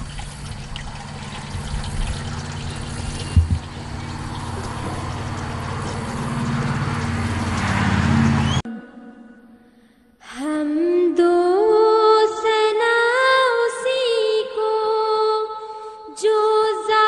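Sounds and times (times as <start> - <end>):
water pouring into a trough: 0.0 - 8.6
low hum: 0.0 - 9.6
brief thump: 3.3 - 3.7.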